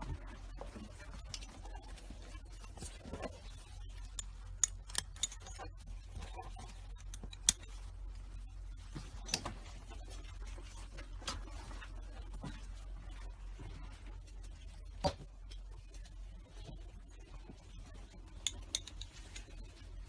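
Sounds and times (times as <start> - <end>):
steady low hum: 0.0 - 20.0
metal buckles clicking: 4.6 - 5.6, 7.1 - 7.7, 18.5 - 19.5.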